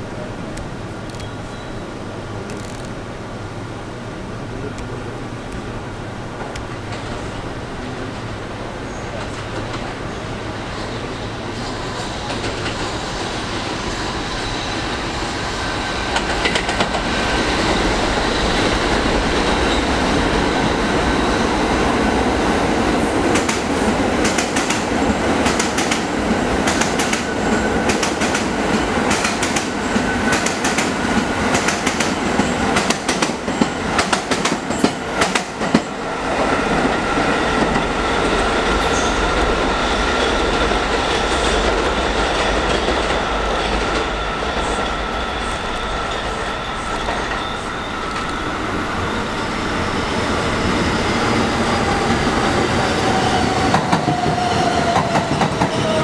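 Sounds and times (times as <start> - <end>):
subway train wheels clattering: 0.0 - 56.0
thin steady whine: 36.9 - 51.8.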